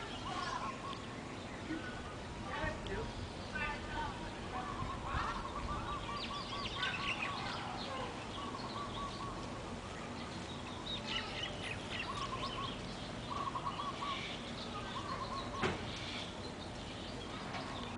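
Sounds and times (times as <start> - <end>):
birds warbling trills: 0.0 - 17.9
steady outdoor hum: 0.0 - 17.9
high bird chirps: 4.3 - 17.9.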